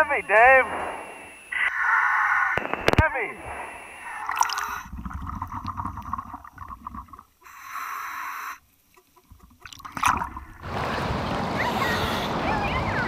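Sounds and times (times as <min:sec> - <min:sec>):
muffled underwater sounds: 0:00.0 - 0:13.0
bubbling: 0:02.6 - 0:07.5, 0:08.6 - 0:10.7
water splash: 0:04.1 - 0:07.3, 0:09.5 - 0:11.2.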